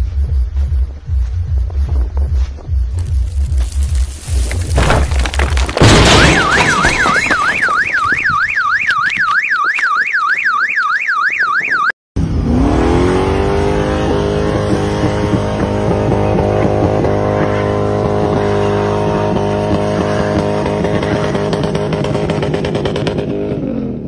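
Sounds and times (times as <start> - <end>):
ice slamming onto car: 3.6 - 8.1
car alarm wailing: 5.9 - 12.0
car engine revving: 12.2 - 23.5.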